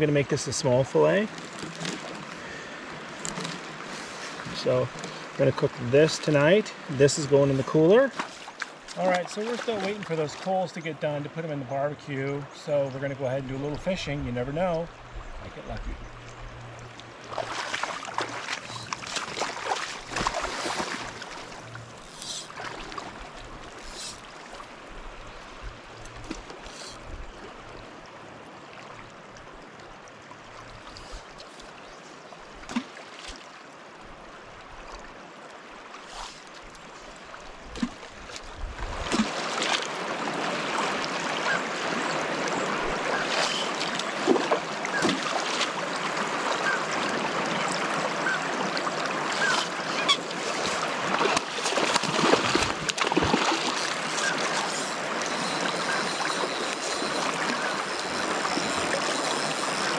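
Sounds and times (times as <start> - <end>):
river water rushing: 16.2 - 31.8, 32.6 - 59.9.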